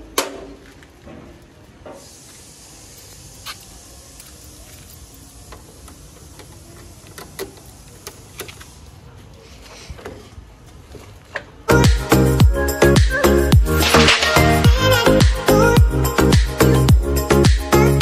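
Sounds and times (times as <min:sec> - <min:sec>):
steady hiss: 0:00.5 - 0:09.8.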